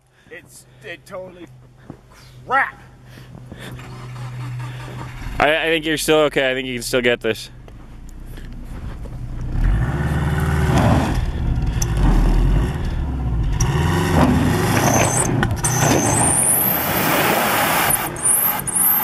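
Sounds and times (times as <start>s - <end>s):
high whine: 3.7s - 9.8s
car engine revving: 3.7s - 19.0s
tyres spinning in snow: 8.2s - 19.0s.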